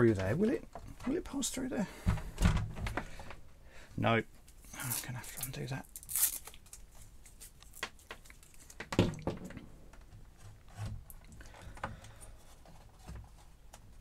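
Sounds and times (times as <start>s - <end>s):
cable rustling: 4.4s - 14.0s.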